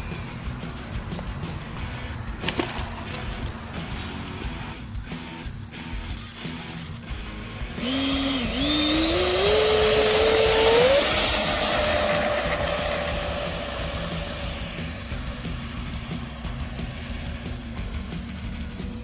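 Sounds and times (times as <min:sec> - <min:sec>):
electric ducted fan whine: 0:00.0 - 0:19.0.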